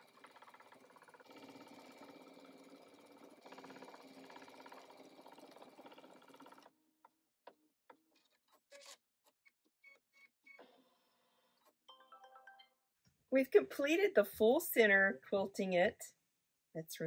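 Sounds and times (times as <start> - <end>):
embroidery machine stitching: 0.0 - 6.7.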